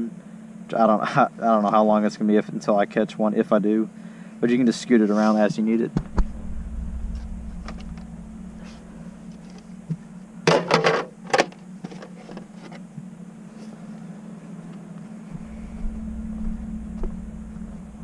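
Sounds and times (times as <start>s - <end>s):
steady low hum: 0.0s - 18.0s
wind rumble on microphone: 6.0s - 10.2s, 15.3s - 18.0s.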